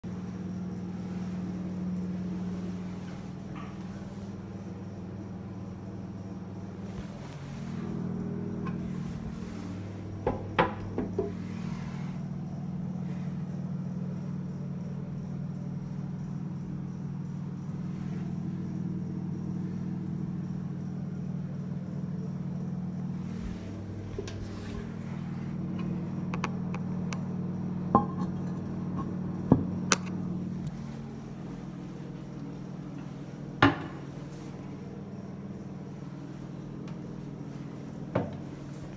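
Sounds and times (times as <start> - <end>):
steady low hum: 0.0 - 38.9
ceramic lid clinking and knocking: 28.0 - 28.4.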